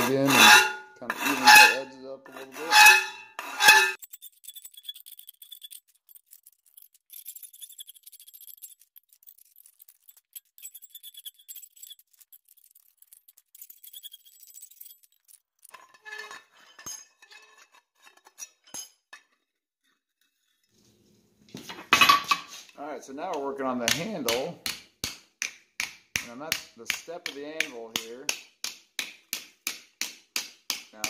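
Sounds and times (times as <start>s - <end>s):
hand file rasping on steel: 0.0s - 5.5s
metal clinks: 3.9s - 19.1s.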